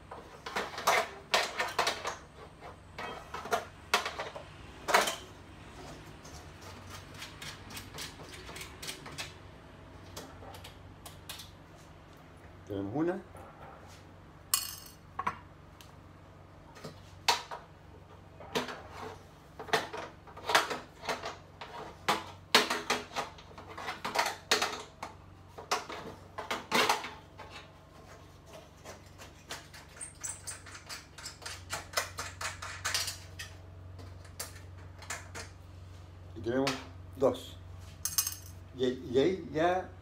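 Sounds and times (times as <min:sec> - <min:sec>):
wrench clinking on metal: 0:14.6 - 0:15.0, 0:38.0 - 0:38.6.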